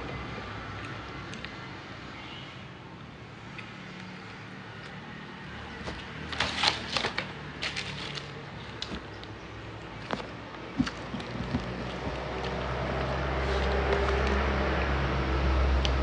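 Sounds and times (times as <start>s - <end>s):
crisp bread crackling: 6.2s - 9.1s.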